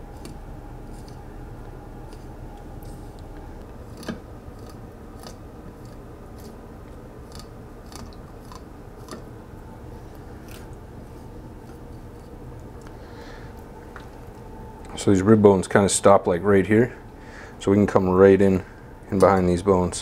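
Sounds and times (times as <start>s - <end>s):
blade clicking over bones: 0.2s - 1.2s, 2.1s - 6.6s, 7.2s - 9.3s.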